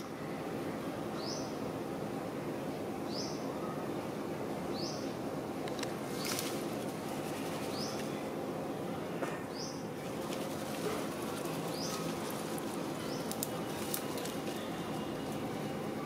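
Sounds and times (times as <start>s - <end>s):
steady background noise: 0.0s - 16.0s
bird chirping: 9.5s - 15.7s.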